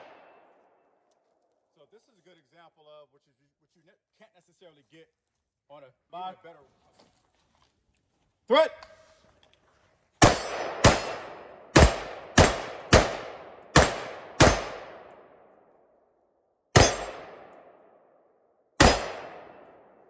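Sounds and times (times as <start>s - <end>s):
rifle shots with echo: 0.0s - 0.8s, 10.2s - 15.7s, 16.7s - 20.0s.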